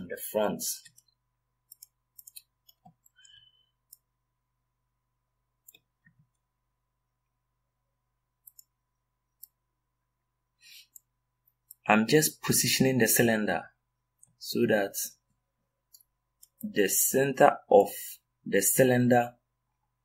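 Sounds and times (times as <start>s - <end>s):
computer mouse and keyboard clicks: 0.8s - 4.1s, 5.6s - 6.4s, 8.4s - 9.6s.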